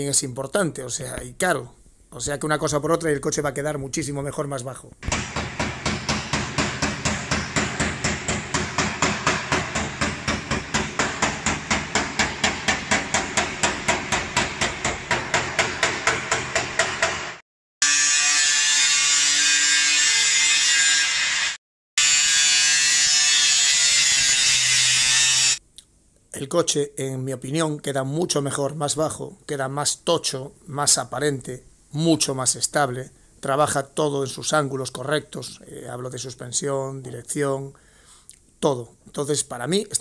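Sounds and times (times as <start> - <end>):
rapid hammering: 5.0 - 17.4.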